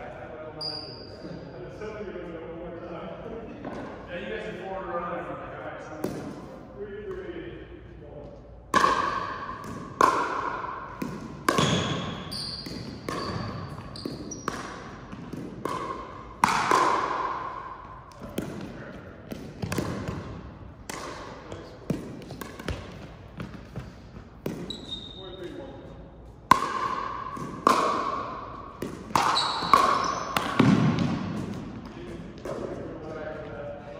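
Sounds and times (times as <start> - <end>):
sneaker squeaks on court floor: 0.6 - 1.4, 11.5 - 15.2, 22.5 - 25.7, 29.1 - 30.6
paddles striking plastic ball: 19.3 - 24.6.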